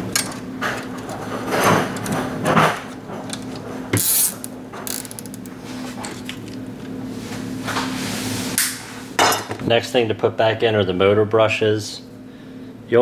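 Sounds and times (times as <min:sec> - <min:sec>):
zip tie ratcheting: 0:04.0 - 0:05.4.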